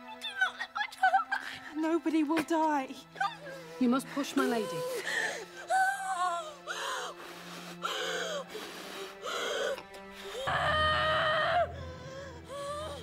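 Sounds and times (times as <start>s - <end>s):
low music drone: 3.0s - 13.0s
woman screaming: 10.5s - 11.8s.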